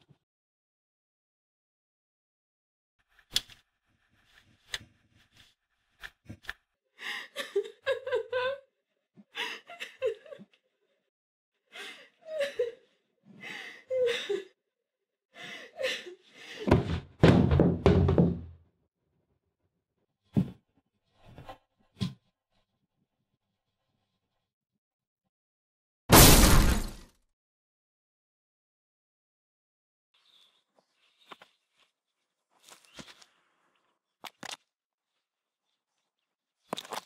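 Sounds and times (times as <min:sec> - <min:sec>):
young woman sobbing: 0:07.1 - 0:08.8, 0:11.8 - 0:12.9, 0:13.6 - 0:14.6
sharp knock: 0:26.1 - 0:27.0.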